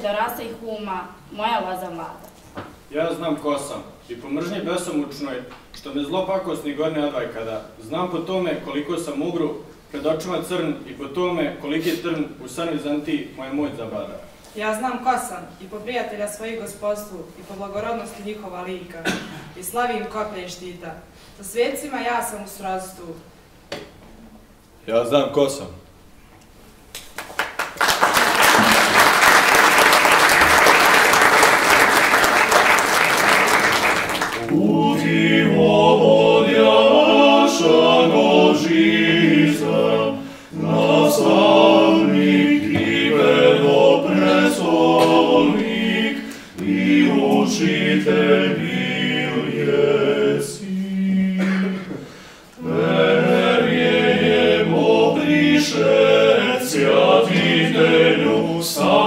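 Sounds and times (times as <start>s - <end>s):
audience applause: 27.1s - 34.6s
male a cappella group singing: 34.4s - 59.0s
singers breathing: 40.2s - 40.6s, 46.2s - 46.6s, 52.0s - 52.6s.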